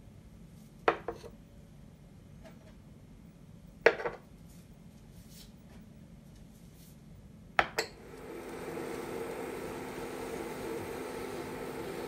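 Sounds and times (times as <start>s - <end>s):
machine hum: 8.0s - 12.0s.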